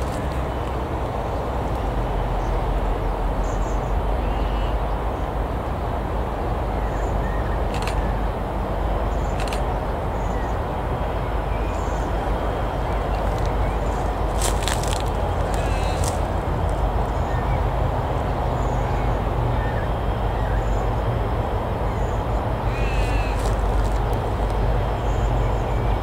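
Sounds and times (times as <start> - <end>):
outdoor rumble and hiss: 0.0 - 26.0
small bird chirping: 13.2 - 16.3, 22.7 - 24.0.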